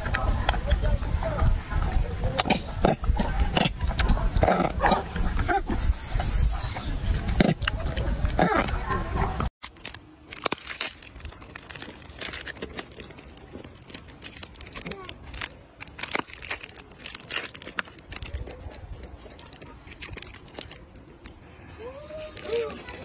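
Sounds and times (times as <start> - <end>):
plastic wrapper crinkling: 9.6 - 21.4.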